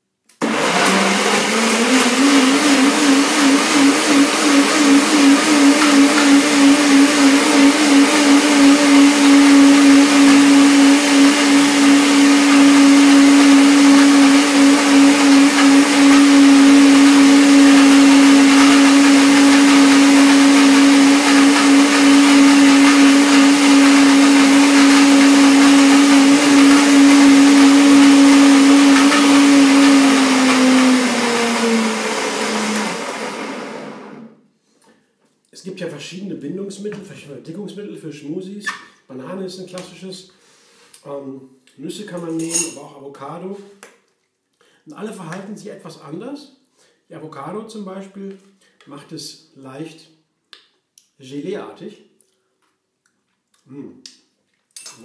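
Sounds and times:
blender motor running: 0:00.4 - 0:34.4.

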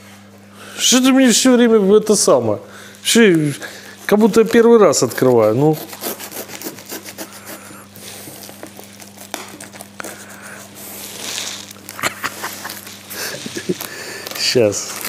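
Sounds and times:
packing tape and cardboard rustling: 0:03.2 - 0:15.0.

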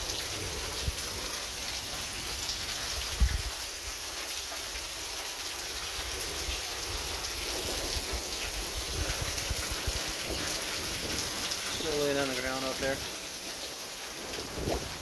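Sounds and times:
rain pattering on concrete: 0:00.0 - 0:15.0.

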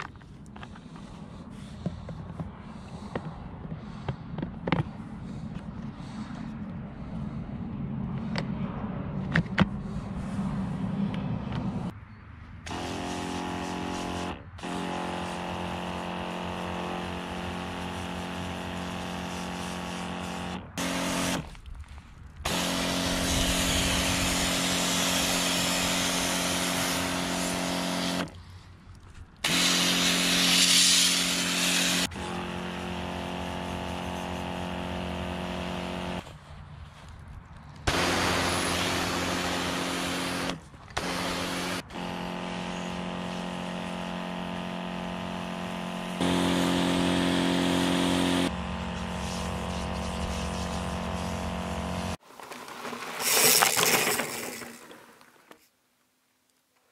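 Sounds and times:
water jet spraying: 0:29.4 - 0:32.1, 0:37.9 - 0:42.2, 0:46.2 - 0:55.2.

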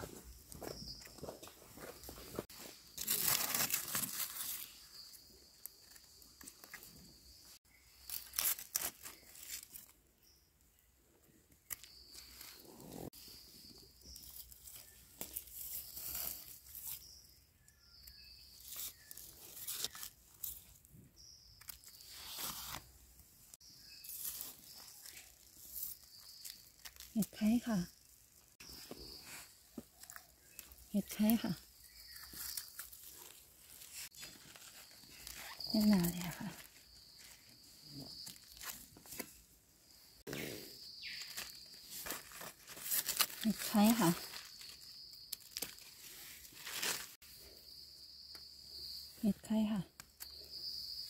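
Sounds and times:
dry leaves rustling and crackling: 0:02.4 - 0:06.8, 0:07.9 - 0:10.0, 0:13.7 - 0:17.1, 0:18.5 - 0:20.8, 0:23.8 - 0:39.4, 0:41.0 - 0:47.2.

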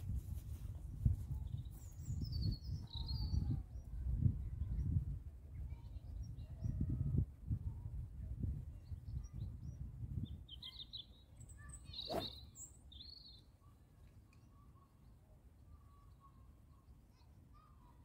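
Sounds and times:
wind rumble on microphone: 0:00.0 - 0:10.6
birds chirping: 0:10.4 - 0:13.4.

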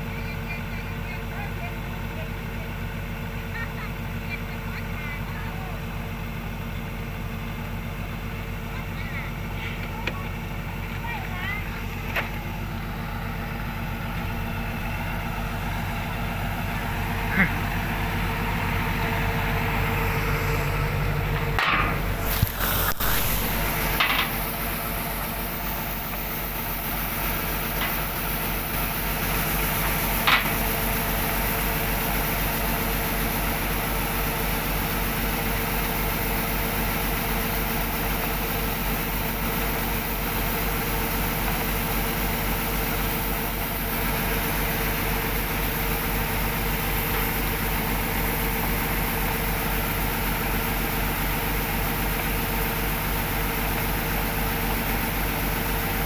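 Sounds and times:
diesel engine running: 0:00.0 - 0:56.0
grain pouring into truck bed: 0:21.9 - 0:33.4.

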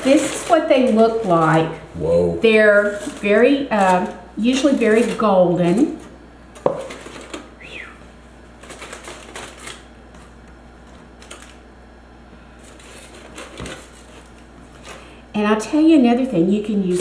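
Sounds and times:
aluminium foil crinkling: 0:00.0 - 0:01.8, 0:02.5 - 0:07.5, 0:08.5 - 0:11.6, 0:12.6 - 0:15.2, 0:16.2 - 0:17.0.

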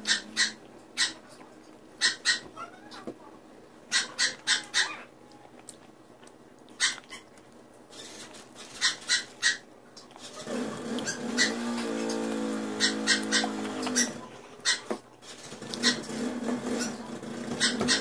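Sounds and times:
child chewing and slurping: 0:05.3 - 0:09.4, 0:10.0 - 0:14.6.

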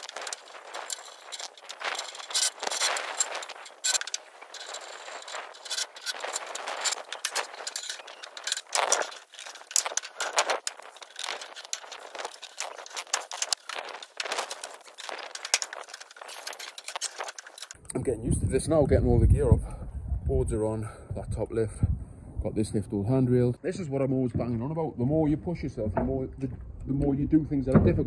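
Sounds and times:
scaffold tubes clanking: 0:00.0 - 0:17.8.

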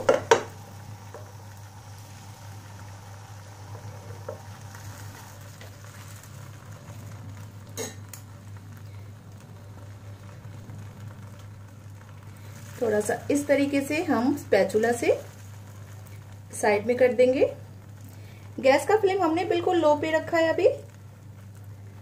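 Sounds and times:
batter sizzling in a frying pan: 0:00.0 - 0:22.0
low steady hum: 0:00.0 - 0:22.0.

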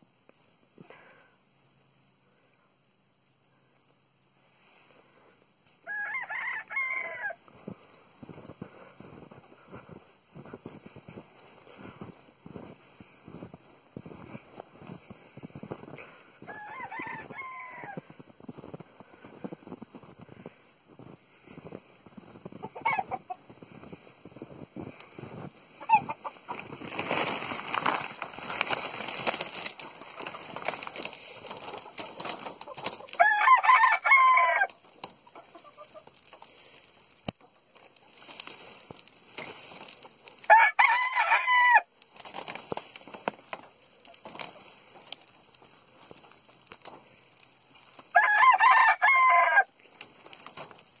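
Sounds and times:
roosters crowing: 0:05.8 - 0:07.5, 0:16.0 - 0:18.2, 0:29.4 - 0:35.9, 0:40.4 - 0:42.0, 0:48.1 - 0:49.8
hens clucking: 0:22.3 - 0:24.4, 0:25.0 - 0:33.2, 0:35.0 - 0:36.4.

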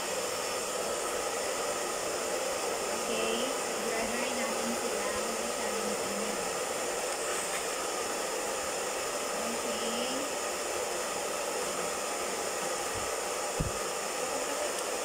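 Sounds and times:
hair dryer running: 0:00.0 - 0:15.0.

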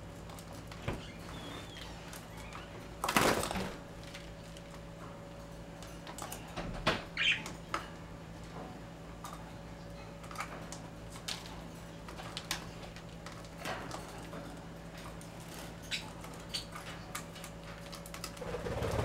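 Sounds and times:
wing-flapping: 0:18.4 - 0:19.0.

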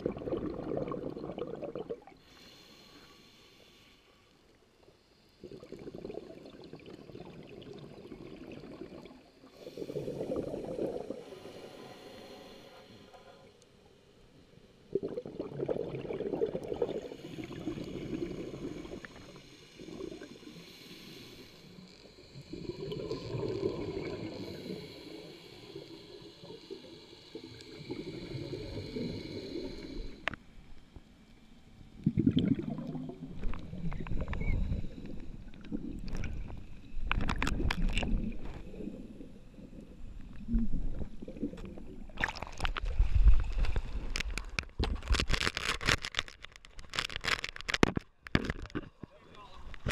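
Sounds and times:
regulator breathing bubbles: 0:00.0 - 0:02.2, 0:05.4 - 0:13.0, 0:14.9 - 0:30.4
water splashing: 0:40.6 - 0:47.7.

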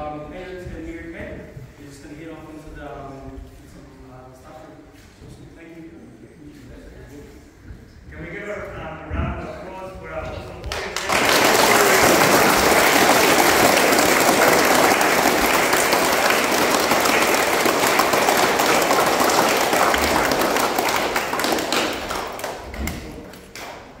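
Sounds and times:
crowd applauding: 0:10.7 - 0:24.0.

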